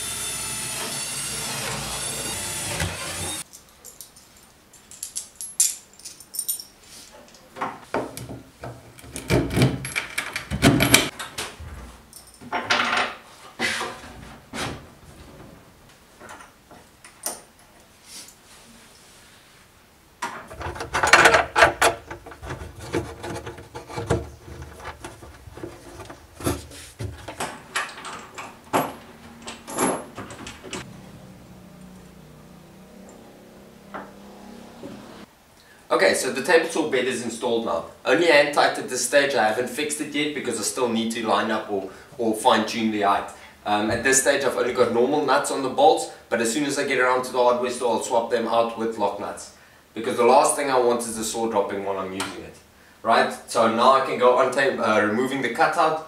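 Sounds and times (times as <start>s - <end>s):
metal bolts clinking: 3.5s - 6.8s.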